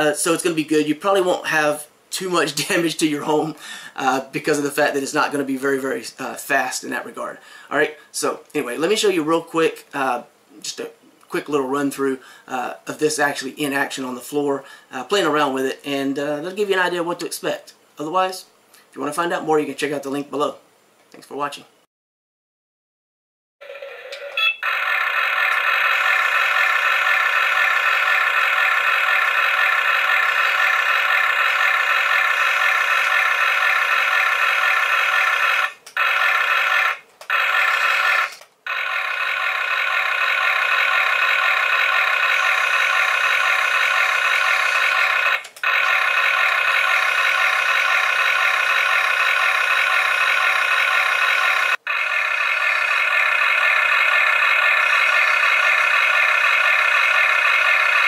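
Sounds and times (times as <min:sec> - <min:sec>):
toy electronic sound effects: 0:23.6 - 0:58.0.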